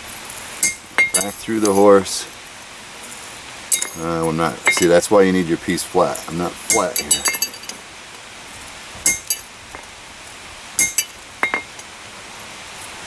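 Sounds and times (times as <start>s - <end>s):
hammer striking chisel on metal: 3.7s - 4.0s, 6.7s - 7.6s, 9.1s - 9.4s, 10.8s - 11.7s.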